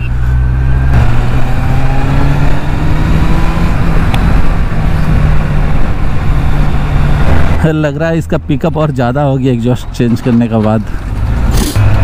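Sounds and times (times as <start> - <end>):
motorcycle engine accelerating: 0.0 - 7.6
wind and road noise: 0.0 - 12.0.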